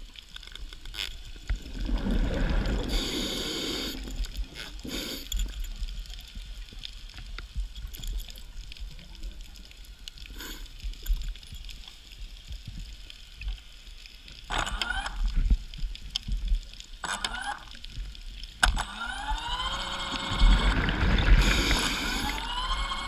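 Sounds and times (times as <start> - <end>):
low underwater rumble: 1.2 - 3.4, 20.2 - 22.9
bubbles gurgling: 1.5 - 4.6, 19.0 - 23.0.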